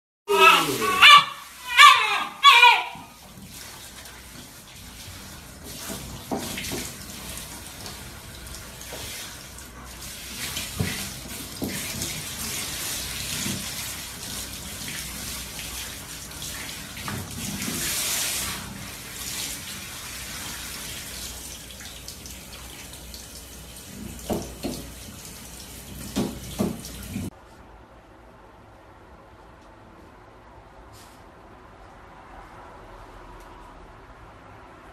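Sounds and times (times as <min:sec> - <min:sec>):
shower water spraying: 0:00.3 - 0:27.3.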